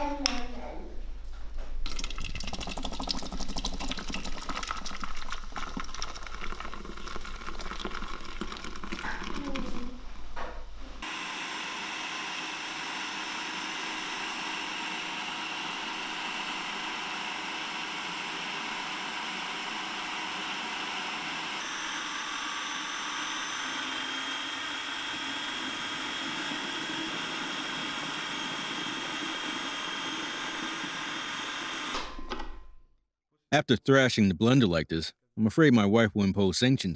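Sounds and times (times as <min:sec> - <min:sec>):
food processor running: 0:11.0 - 0:32.1.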